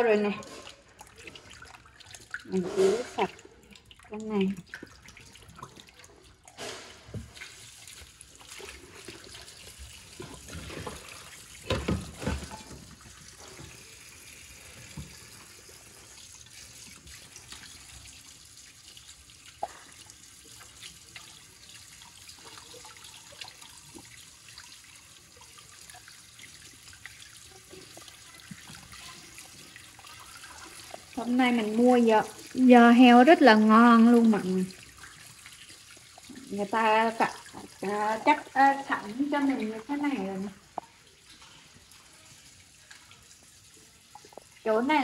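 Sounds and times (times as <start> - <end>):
tap running into sink: 10.1 - 13.9, 14.7 - 15.5.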